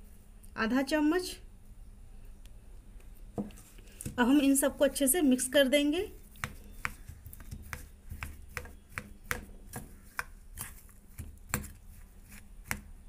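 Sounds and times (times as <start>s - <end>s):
spoon scraping metal bowl: 6.2s - 12.5s.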